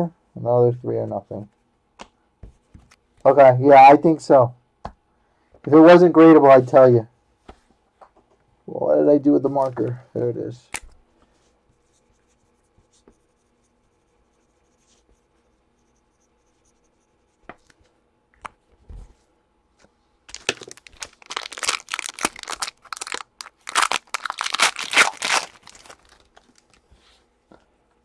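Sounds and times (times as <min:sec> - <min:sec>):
plastic wrapper crinkling and tearing: 0:20.3 - 0:26.8.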